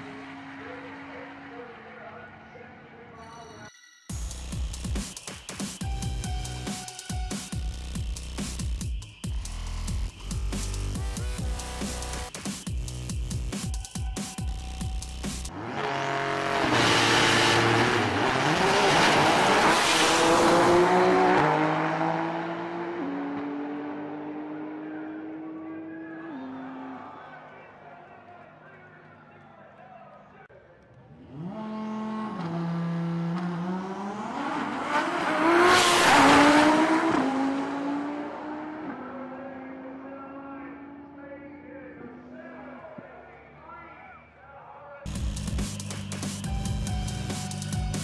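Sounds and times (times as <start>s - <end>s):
drag car accelerating past: 15.5s - 26.1s, 31.1s - 40.1s.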